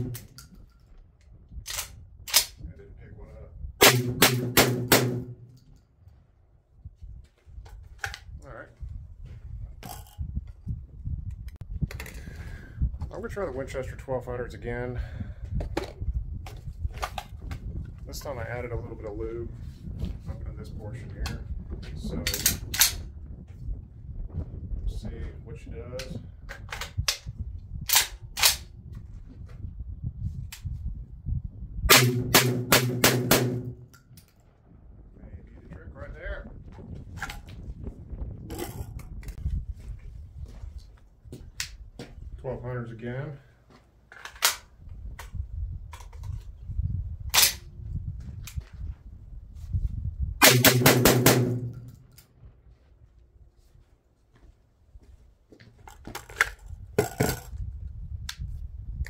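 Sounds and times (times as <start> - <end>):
shotgun shots: 3.8 - 5.5, 31.9 - 33.9, 50.4 - 51.9.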